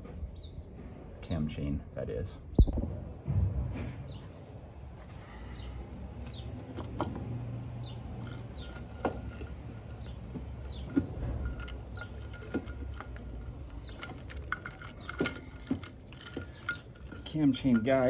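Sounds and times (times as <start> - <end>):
small birds chirping: 0.0 - 18.0
metal clinks and knocks: 5.9 - 18.0.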